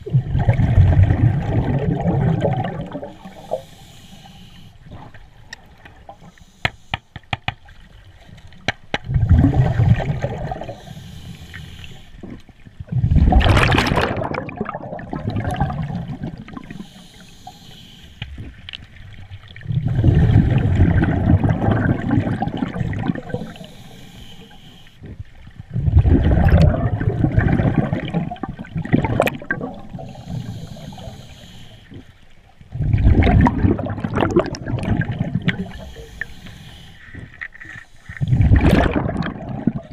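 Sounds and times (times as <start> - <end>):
exhaust bubbles underwater: 0.0 - 3.6, 9.0 - 10.9, 12.2 - 16.9, 19.2 - 23.7, 25.1 - 31.1, 32.7 - 36.2, 38.2 - 39.9
diver breathing through regulator: 3.1 - 4.8, 10.5 - 12.2, 16.6 - 18.4, 23.2 - 25.0, 29.9 - 32.1, 35.4 - 38.5.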